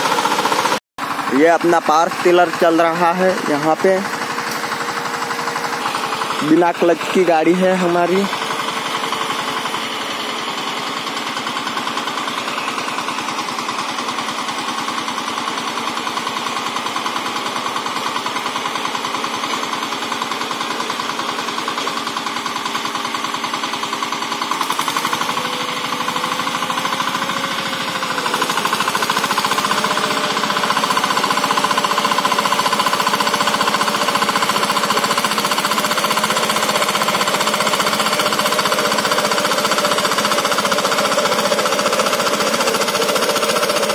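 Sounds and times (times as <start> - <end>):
tiller diesel engine running: 0.0 - 43.9.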